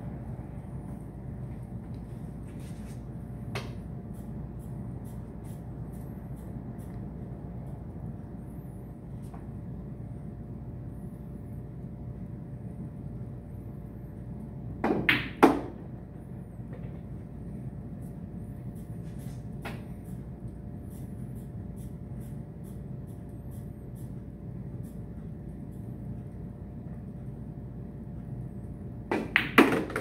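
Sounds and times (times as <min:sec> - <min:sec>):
steady low hum: 0:00.0 - 0:30.0
cue striking ball click: 0:29.1 - 0:30.0
pool balls colliding click: 0:29.1 - 0:30.0.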